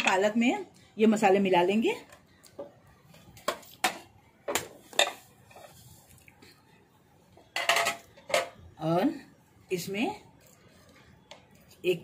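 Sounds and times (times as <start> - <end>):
utensils clinking on plates: 4.9 - 5.8, 7.5 - 8.6.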